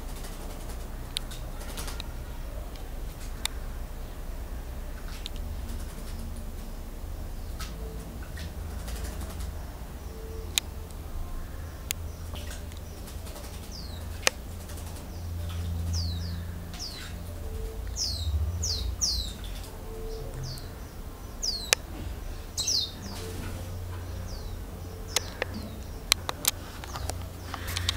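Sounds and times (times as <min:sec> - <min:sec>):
low rumble: 0:00.0 - 0:27.9
songbird chirping: 0:00.0 - 0:27.9
sharp clicks: 0:25.1 - 0:27.9.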